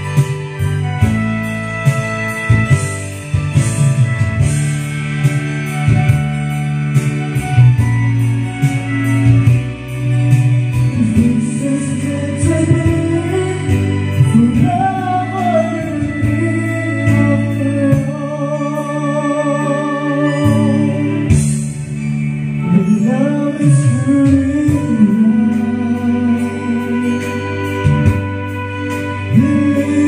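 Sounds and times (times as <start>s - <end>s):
karaoke ballad backing track: 0.0s - 30.0s
person singing: 10.7s - 21.7s, 22.6s - 30.0s.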